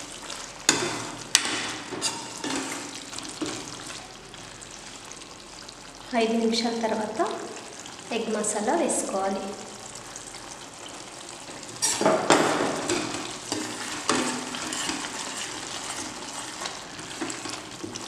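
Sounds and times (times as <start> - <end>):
gravy simmering and bubbling: 0.0 - 8.6, 9.4 - 18.0
metal ladle scraping pan: 0.7 - 3.8, 11.6 - 18.0.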